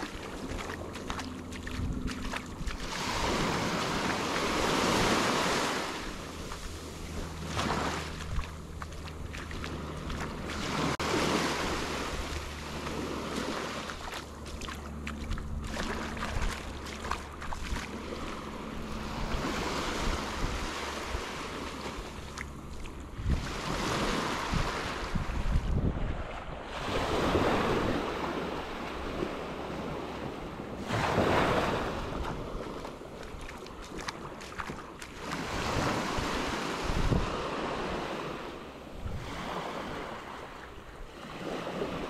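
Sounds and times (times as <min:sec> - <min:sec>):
waves breaking on beach: 0:00.0 - 0:42.0
wind on microphone: 0:00.0 - 0:42.0
surf breaking on beach: 0:09.7 - 0:14.0, 0:26.5 - 0:33.2.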